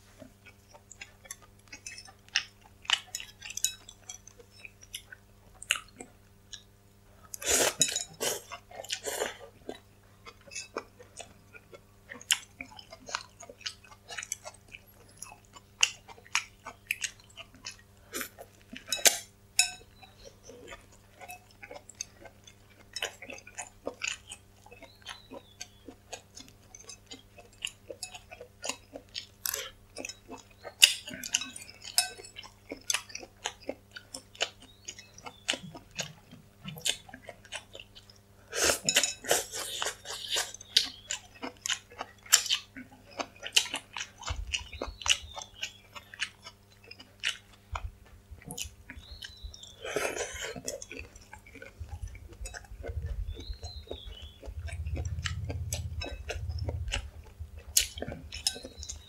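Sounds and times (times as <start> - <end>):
person chewing noodle soup: 0.1 - 59.0.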